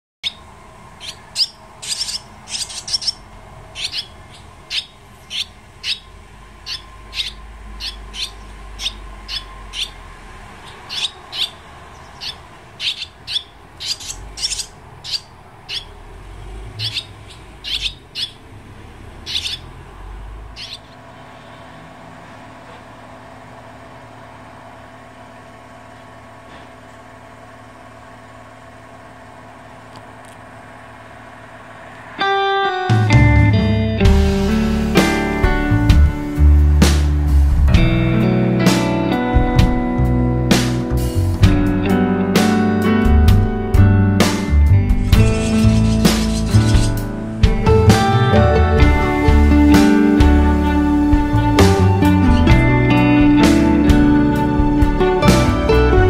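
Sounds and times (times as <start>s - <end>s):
nestlings begging chirps: 0.2s - 21.6s, 44.9s - 47.9s.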